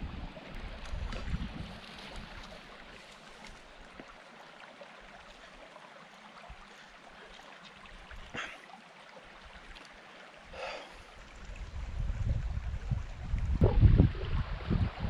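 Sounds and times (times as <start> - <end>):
small stream rushing: 0.0 - 15.0
short breaths: 10.5 - 11.1.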